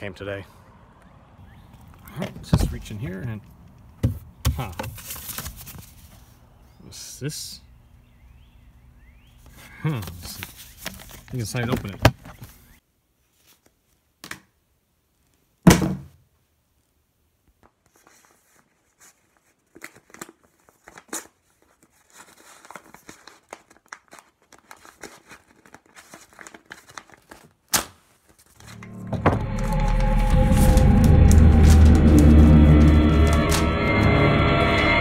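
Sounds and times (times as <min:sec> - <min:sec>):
paper crinkling and rustling: 0:04.7 - 0:06.4, 0:09.4 - 0:14.0, 0:17.5 - 0:33.6
paper envelope being opened: 0:04.7 - 0:06.4, 0:09.4 - 0:12.7, 0:17.6 - 0:33.8.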